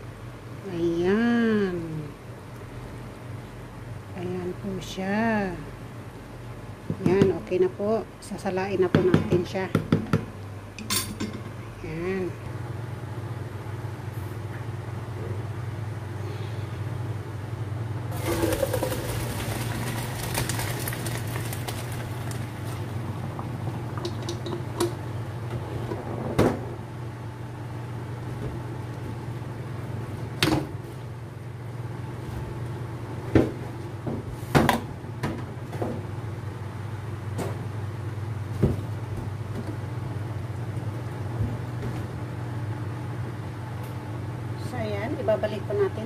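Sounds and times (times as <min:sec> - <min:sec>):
steady low hum: 0:00.0 - 0:46.0
water splashing into colander: 0:18.1 - 0:22.9.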